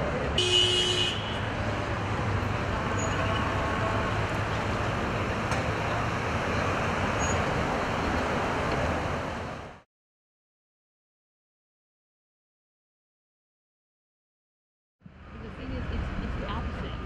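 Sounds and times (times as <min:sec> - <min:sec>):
car engines in slow traffic: 0:00.0 - 0:09.8.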